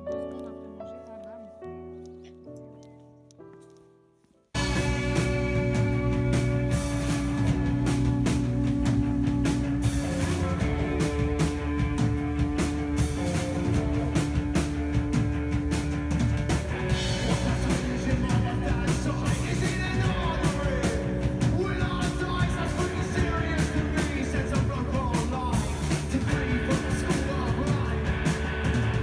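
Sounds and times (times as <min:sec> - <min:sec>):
live rock band playing: 0:04.6 - 0:29.0
singer singing: 0:16.9 - 0:29.0.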